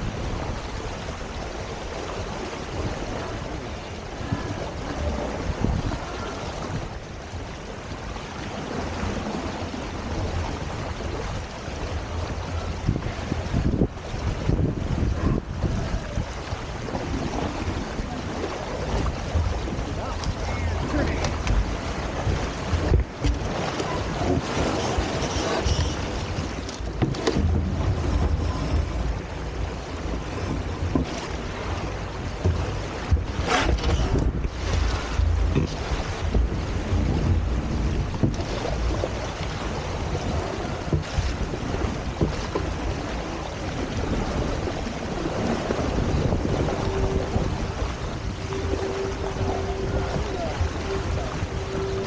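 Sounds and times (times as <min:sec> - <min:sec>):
water rushing past hulls: 0:00.0 - 0:52.0
wind buffeting microphone: 0:00.0 - 0:52.0.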